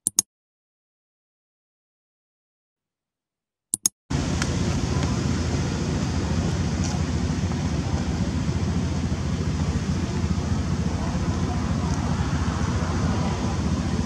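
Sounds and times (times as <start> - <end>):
click sound effects: 0.0 - 0.2, 3.7 - 3.9
low outdoor rumble: 4.1 - 14.0.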